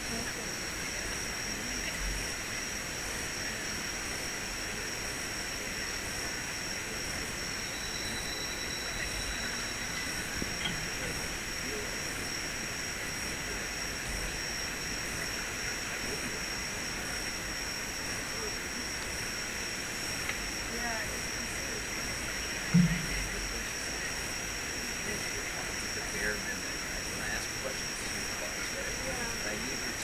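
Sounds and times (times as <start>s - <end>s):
high-pitched whine: 0.0s - 30.0s.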